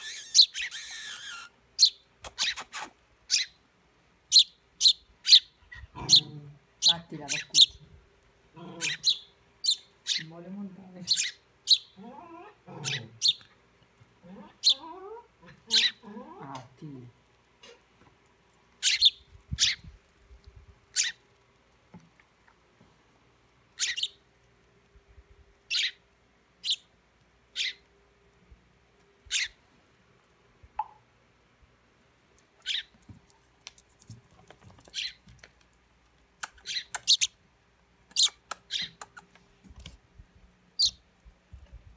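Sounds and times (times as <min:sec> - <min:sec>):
fledglings chirping: 0:00.0 - 0:03.6, 0:04.3 - 0:07.9, 0:08.7 - 0:10.4, 0:11.0 - 0:12.0, 0:12.8 - 0:13.5, 0:18.8 - 0:19.9, 0:20.9 - 0:21.2, 0:23.8 - 0:24.2, 0:25.7 - 0:26.0, 0:26.6 - 0:26.9, 0:27.5 - 0:27.8, 0:29.3 - 0:29.6, 0:32.6 - 0:32.9, 0:34.8 - 0:35.2, 0:36.4 - 0:37.4, 0:38.1 - 0:39.3, 0:40.8 - 0:41.0.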